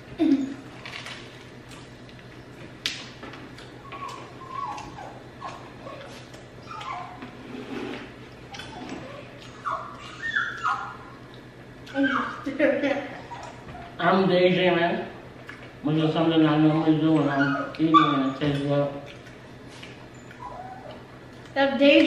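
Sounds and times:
loud chewing and lip-smacking: 1.6s - 7.2s, 15.4s - 15.8s, 17.1s - 21.6s.

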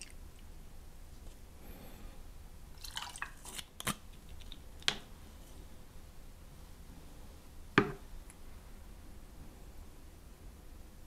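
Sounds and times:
liquid trickling into shaker: 2.8s - 3.7s
knocks on a wooden tray: 7.8s - 8.0s.

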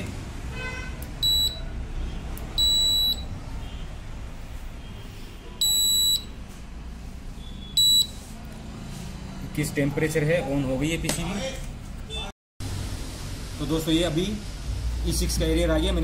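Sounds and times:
high-pitched buzzer beeps: 1.2s - 1.6s, 2.6s - 3.4s, 5.6s - 6.4s, 7.4s - 8.2s.

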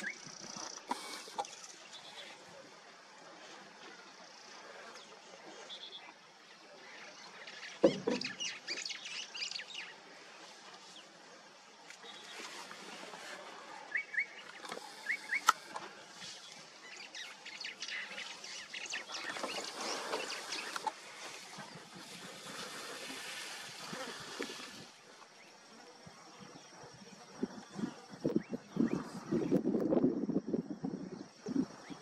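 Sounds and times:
crackling rustling noise: 11.8s - 13.8s, 18.9s - 25.3s
birds chirping: 13.8s - 24.8s.

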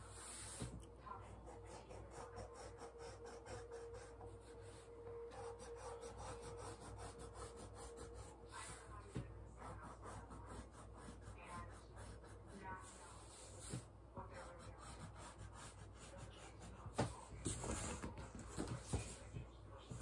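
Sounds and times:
writing strokes on poster board: 0.0s - 20.0s.

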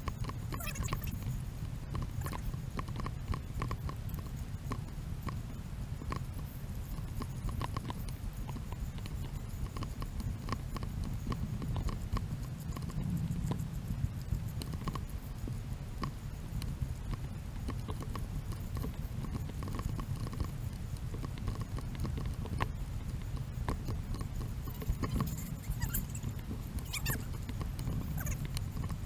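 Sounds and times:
steady low rumble: 0.0s - 29.0s.

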